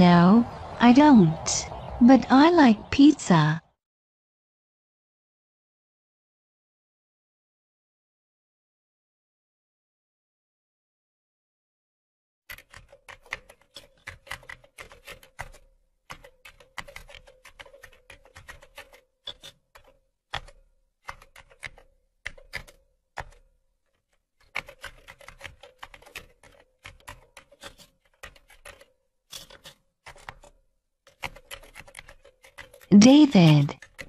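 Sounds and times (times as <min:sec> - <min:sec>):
rapid keyboard typing: 0:12.5 - 0:34.0.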